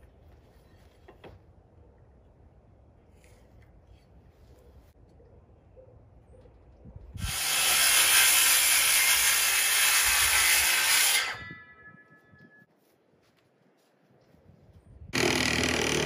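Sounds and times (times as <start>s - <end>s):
handheld power tool motor: 15.2s - 16.0s.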